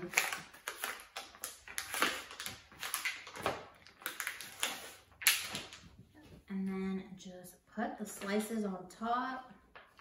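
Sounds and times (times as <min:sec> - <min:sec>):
plastic packaging crinkling: 0:00.0 - 0:05.8.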